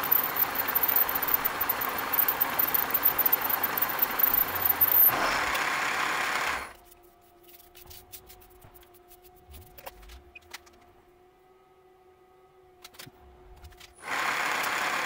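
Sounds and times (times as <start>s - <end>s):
end mill cutting metal: 0.0s - 6.7s.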